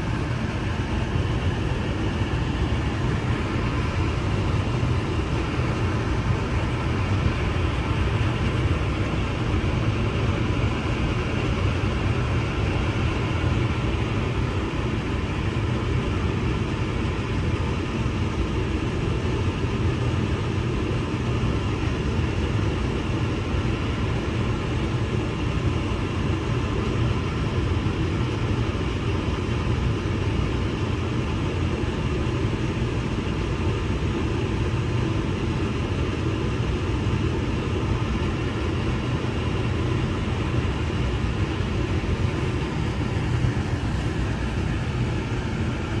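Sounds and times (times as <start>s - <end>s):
cabinet blower airflow rushing: 0.0s - 18.7s, 34.0s - 46.0s.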